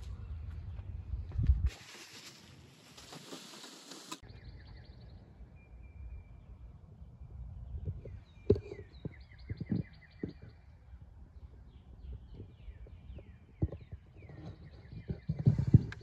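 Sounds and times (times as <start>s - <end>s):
small birds chirping: 4.1s - 16.0s.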